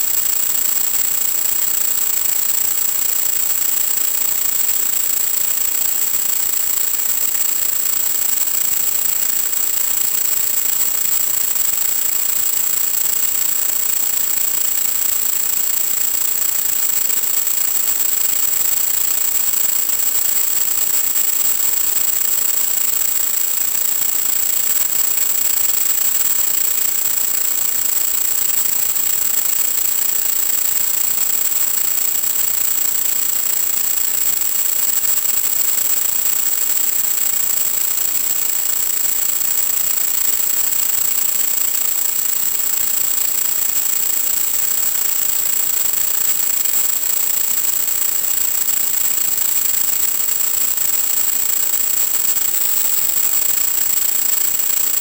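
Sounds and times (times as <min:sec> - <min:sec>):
high-pitched whine: 0:49.6 - 0:55.0
static hiss: 0:50.6 - 0:55.0.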